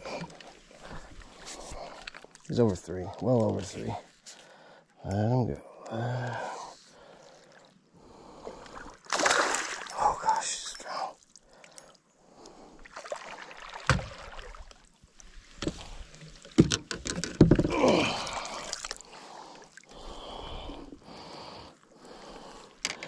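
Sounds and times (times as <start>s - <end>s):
fish splashing in water: 9.0s - 9.9s
net knocking against boat: 16.6s - 17.8s.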